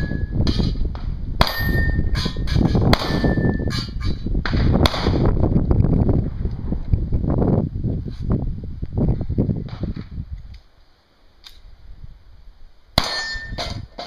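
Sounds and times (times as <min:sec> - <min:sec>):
steel targets ringing: 0:00.0 - 0:00.8, 0:01.4 - 0:04.2, 0:13.0 - 0:14.0
gunshots: 0:02.9 - 0:03.4, 0:04.4 - 0:05.4, 0:13.0 - 0:13.8.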